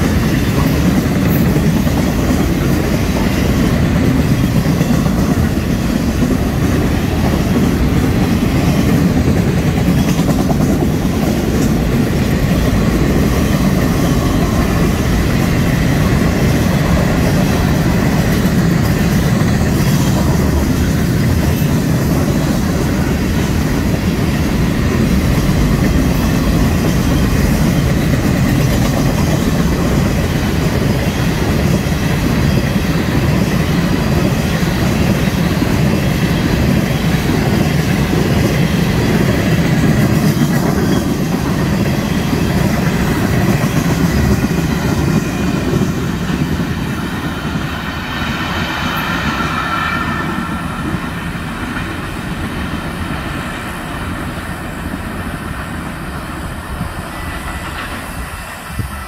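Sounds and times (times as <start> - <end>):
freight train rolling past: 0.0 - 59.0.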